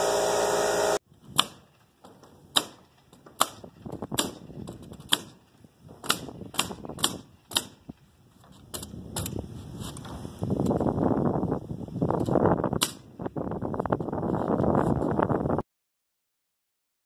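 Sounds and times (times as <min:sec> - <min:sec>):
nail gun firing: 0:00.1 - 0:05.4, 0:06.0 - 0:07.9, 0:12.8 - 0:13.1.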